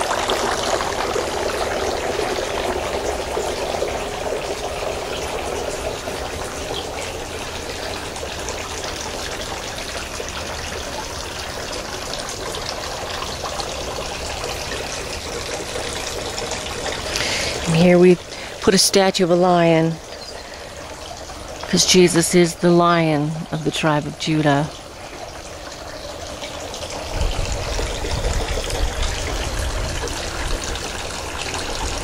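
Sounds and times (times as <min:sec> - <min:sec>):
water trickling: 0:00.0 - 0:32.0.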